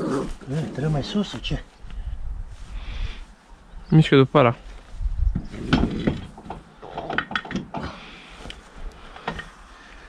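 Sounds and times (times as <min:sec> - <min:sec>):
knocks and clunks of wheel fitting: 0:05.3 - 0:08.0.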